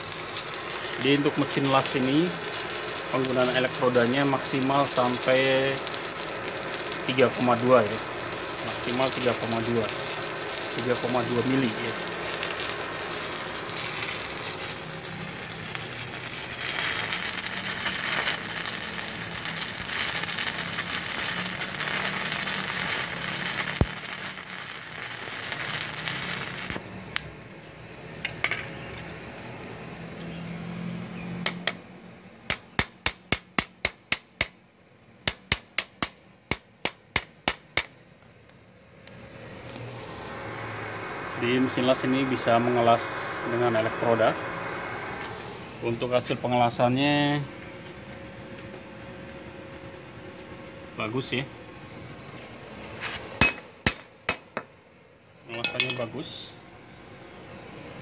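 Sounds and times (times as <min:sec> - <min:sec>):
welding arc sizzling: 0:00.0 - 0:31.8, 0:39.1 - 0:51.5.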